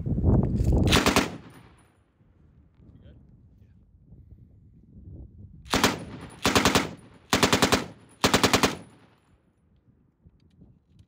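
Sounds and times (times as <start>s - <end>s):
machine gun bursts: 5.7s - 9.0s.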